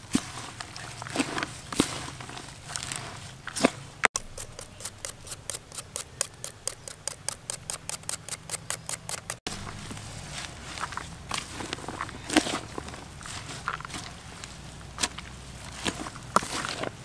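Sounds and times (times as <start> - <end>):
spoon tossing salad in plastic bowl: 0.1 - 17.0
rapid even clicking: 4.2 - 9.4.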